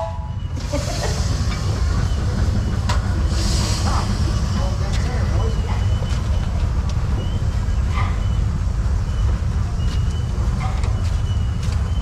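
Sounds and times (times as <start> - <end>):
steam traction engine rumbling: 0.0 - 12.0.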